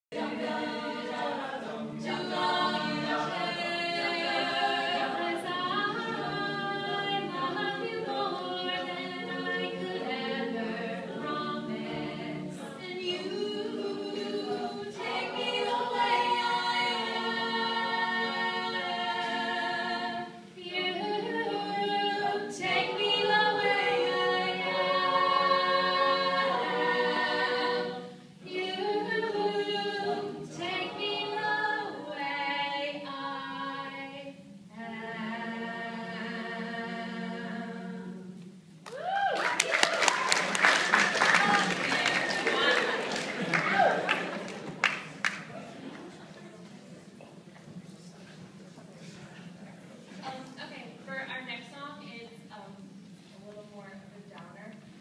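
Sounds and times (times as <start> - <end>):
backing vocal harmonies: 0.1 - 48.2.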